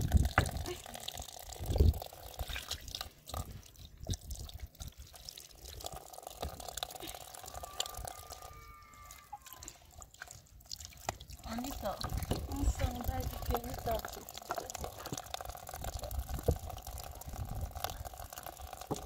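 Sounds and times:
tap water splashing: 9.6 - 16.8, 17.8 - 19.0.

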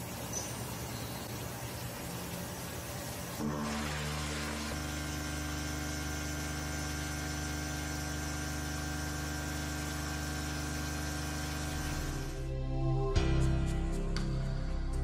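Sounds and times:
end mill cutting steel: 3.4 - 12.4.

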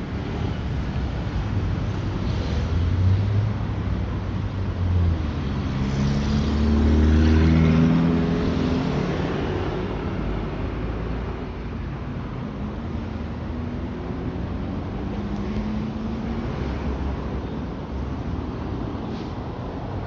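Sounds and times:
rumble of passing cars: 0.0 - 20.0
car passing close by: 5.4 - 9.9.

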